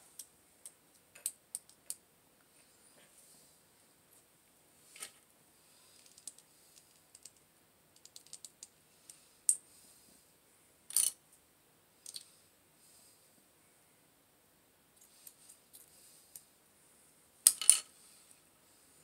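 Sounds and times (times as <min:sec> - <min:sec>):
plastic toy parts clicking: 0:08.0 - 0:08.6.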